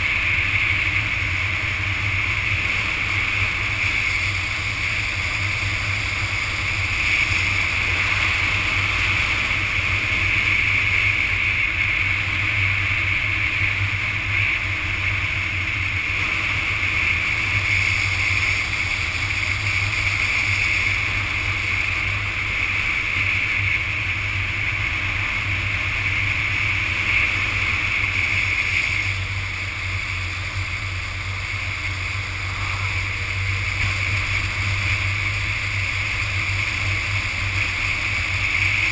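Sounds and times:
motorcycle engine hum: 0.0s - 38.9s
wind and road noise: 0.0s - 38.9s.

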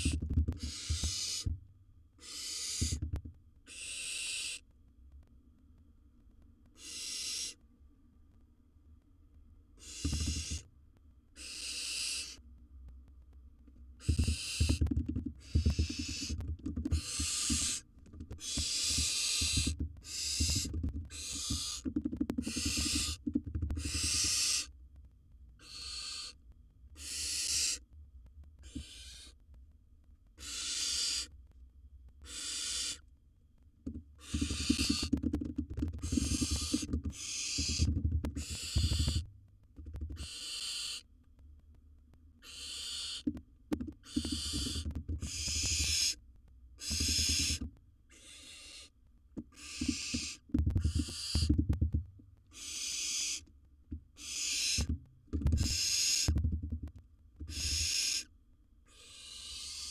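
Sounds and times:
owl hissing: 0.0s - 1.5s, 2.2s - 3.0s, 3.7s - 4.6s, 6.8s - 7.6s, 9.8s - 10.6s, 11.4s - 12.4s, 14.0s - 14.8s, 15.4s - 23.2s, 23.8s - 24.7s, 25.6s - 26.4s, 27.0s - 27.8s, 28.6s - 29.4s, 30.4s - 31.3s, 32.2s - 33.0s, 34.2s - 35.2s, 36.0s - 39.3s, 40.2s - 41.1s, 42.4s - 43.3s, 44.0s - 46.2s, 46.8s - 51.6s, 52.5s - 53.5s, 54.2s - 54.9s, 55.5s - 56.4s, 57.5s - 58.3s, 58.9s - 59.9s.

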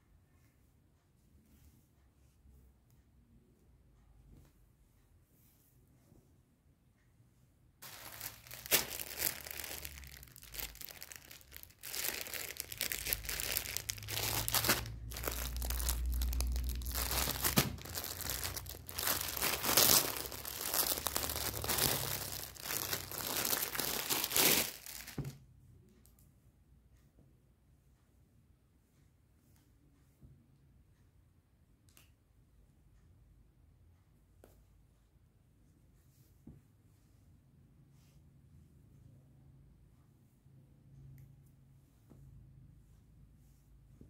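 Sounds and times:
plastic bag crinkling: 7.8s - 25.4s.

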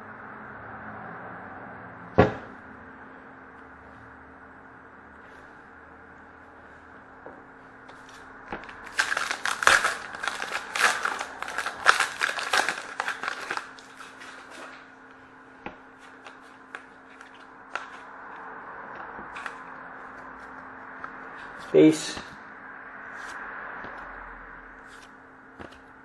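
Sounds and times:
wrapper crinkling and tearing: 8.8s - 14.7s.

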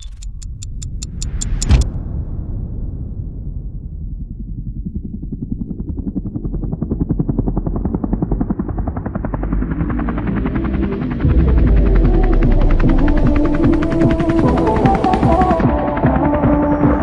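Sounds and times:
fast pulsing rotor-like beat: 6.1s - 17.0s
deep bass held notes: 9.1s - 15.7s.

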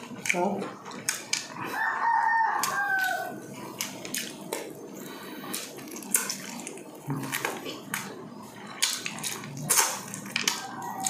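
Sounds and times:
rooster crowing: 1.6s - 3.4s, 10.5s - 11.0s.

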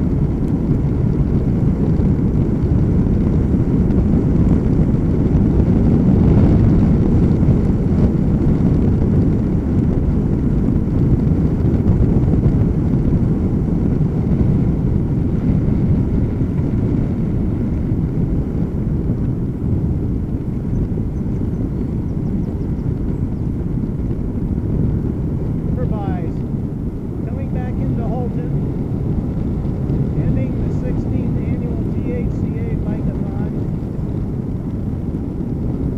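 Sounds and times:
low wind rumble on microphone: 0.0s - 35.9s.

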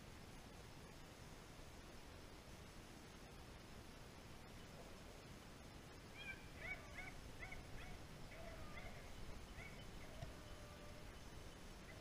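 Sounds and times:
distant animal cries: 6.1s - 12.0s.

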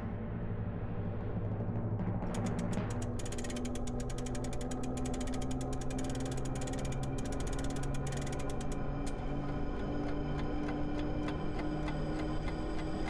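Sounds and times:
rapid ratcheting clock clicks: 2.3s - 8.8s.

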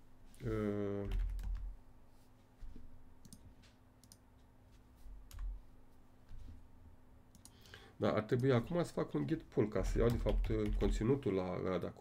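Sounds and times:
computer keyboard keystrokes: 1.0s - 1.7s, 3.2s - 3.4s, 5.3s - 5.6s, 10.0s - 11.0s.

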